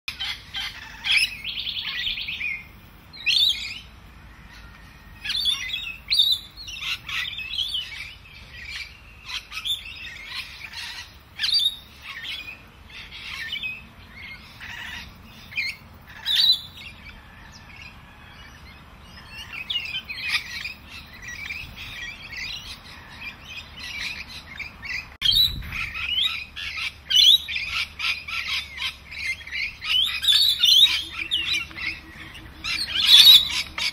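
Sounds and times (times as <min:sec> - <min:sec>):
birds chirping and calling: 0:00.1 - 0:33.9.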